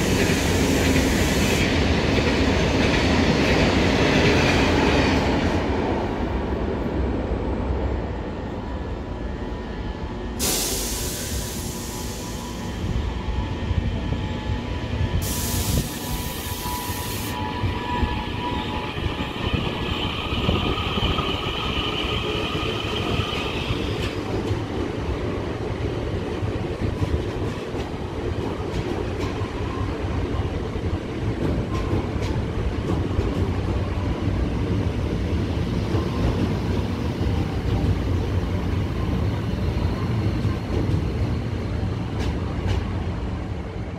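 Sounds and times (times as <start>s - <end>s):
electric train whine: 8.2s - 26.9s
air hiss burst: 10.4s - 12.7s, 15.2s - 17.4s.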